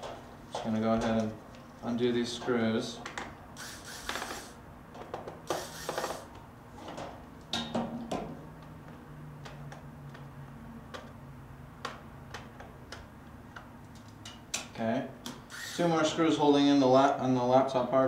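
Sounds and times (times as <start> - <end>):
electric screwdriver running: 3.6 - 4.6, 5.5 - 6.3, 15.5 - 15.9.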